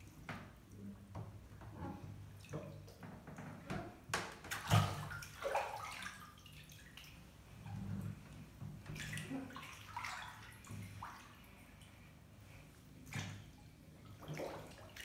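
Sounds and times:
feet splashing in bathwater: 4.4 - 7.3, 8.8 - 12.0, 13.0 - 15.0.

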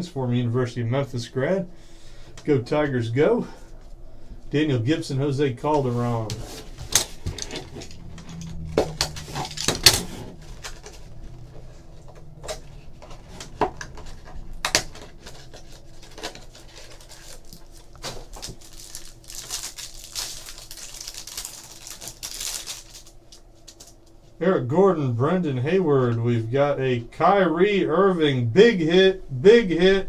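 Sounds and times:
cards rustling in wrapping: 6.1 - 24.0.

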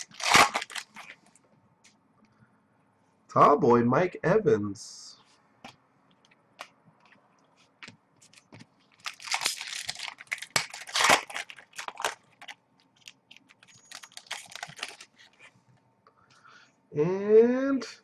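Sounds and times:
foil wrapper tearing and crinkling: 0.0 - 1.2, 8.9 - 15.4.

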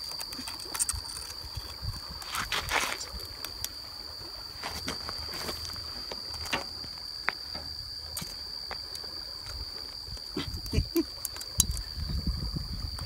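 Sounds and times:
high-pitched insect chorus: 0.0 - 13.0
footsteps on gravel: 4.6 - 7.4.

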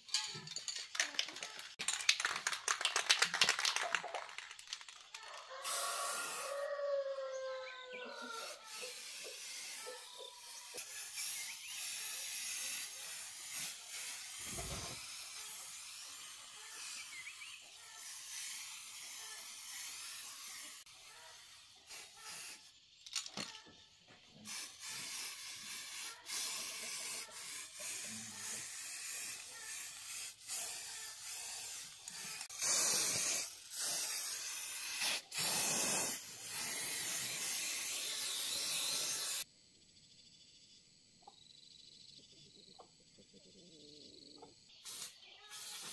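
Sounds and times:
spray-paint can hissing: 5.6 - 6.6, 8.2 - 22.8, 24.5 - 39.5, 44.7 - 45.9.

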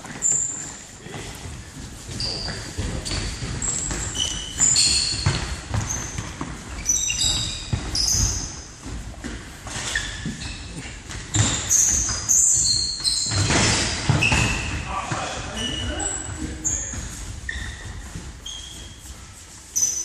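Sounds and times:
shoes squeaking on floor: 0.0 - 20.0
running footsteps: 14.8 - 20.0.

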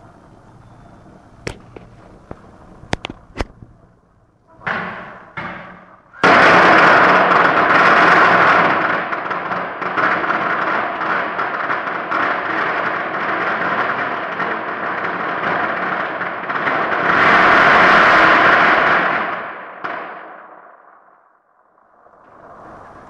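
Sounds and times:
firecrackers crackling: 0.0 - 23.0
sharp isolated clicks: 1.4 - 3.7.

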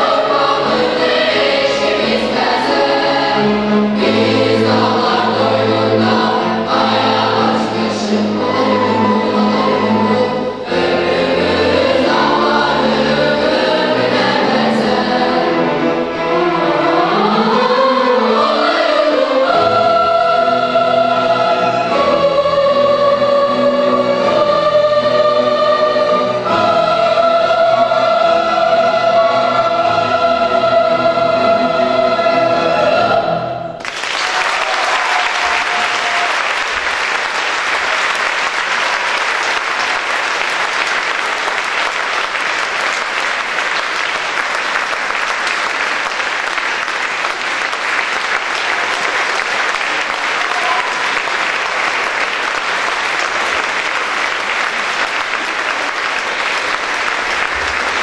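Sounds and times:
string orchestra: 0.0 - 33.9
children's choir singing: 0.0 - 58.0
audience applause: 33.8 - 58.0.

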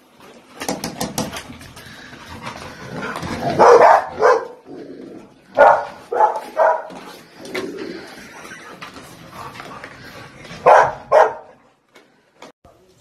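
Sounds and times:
dog barking: 3.5 - 4.6, 5.6 - 7.0, 10.6 - 11.6.

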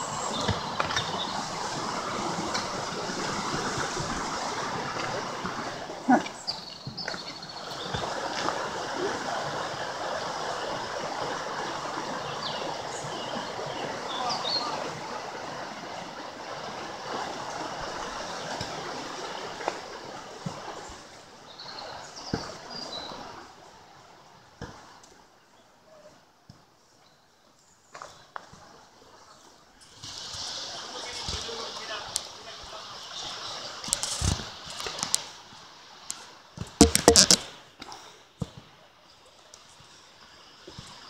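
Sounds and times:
river water rushing: 0.0 - 24.4, 30.0 - 37.7
sharp knock: 36.8 - 37.4.

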